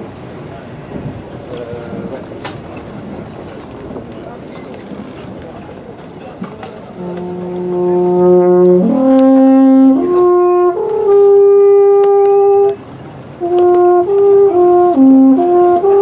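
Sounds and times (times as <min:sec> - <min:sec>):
natural horn melody: 0:06.9 - 0:16.0.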